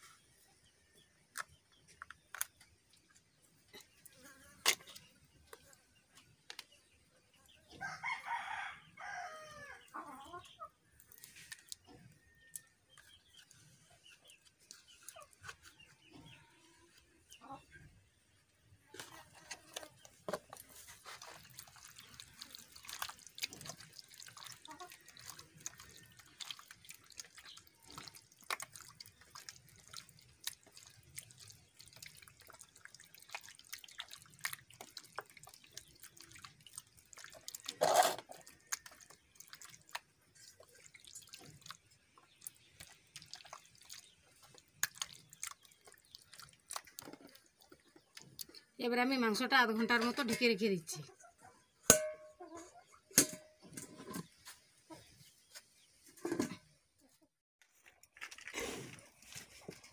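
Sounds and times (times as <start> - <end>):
hands squelching raw meat: 19.0 - 48.6.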